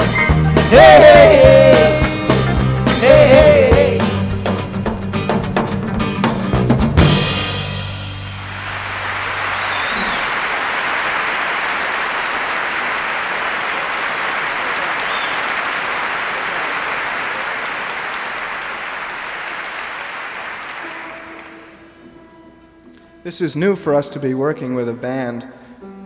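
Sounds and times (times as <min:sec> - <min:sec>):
audience applauding: 0:08.3 - 0:22.0.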